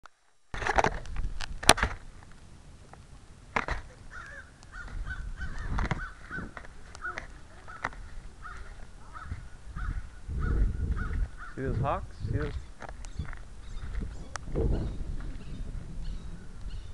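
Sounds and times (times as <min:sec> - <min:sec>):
bird calling: 0:03.8 - 0:11.9, 0:12.5 - 0:16.9
camera handling knocks and clicks: 0:05.7 - 0:08.0.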